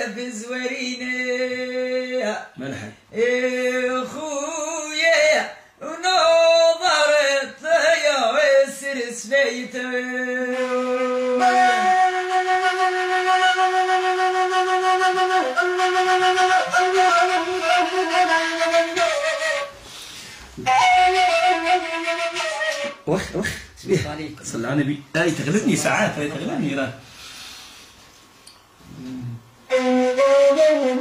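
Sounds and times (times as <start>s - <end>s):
breathy end-blown flute: 10.5s - 23.0s, 28.9s - 31.0s.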